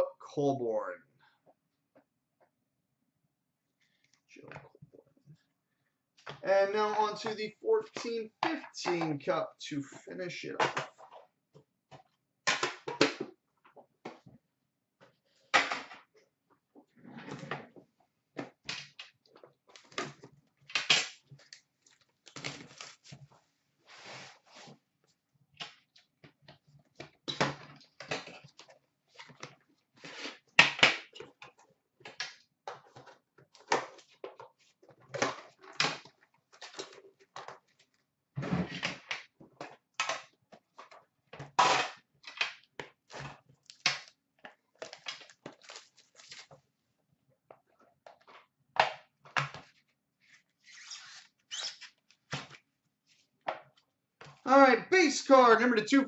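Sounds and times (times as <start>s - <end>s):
plastic wrapping crinkling and tearing: 44.8s - 46.6s.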